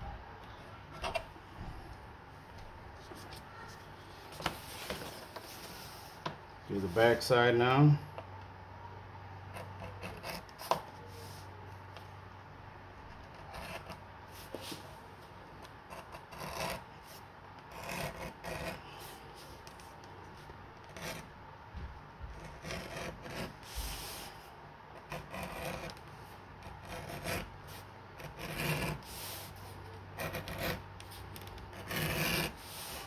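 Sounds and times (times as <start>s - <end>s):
edge beveler scraping leather: 9.6s - 10.8s, 15.9s - 16.9s, 17.7s - 18.8s, 22.4s - 24.3s, 25.0s - 26.0s, 26.6s - 29.6s, 30.2s - 33.0s.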